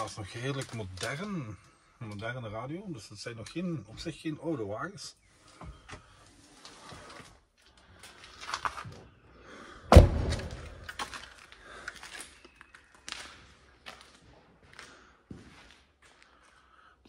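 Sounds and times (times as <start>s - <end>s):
scuffing and footsteps on debris: 0.0s - 1.5s, 6.0s - 9.2s, 10.0s - 16.8s
vehicle door slamming shut: 9.9s - 10.8s.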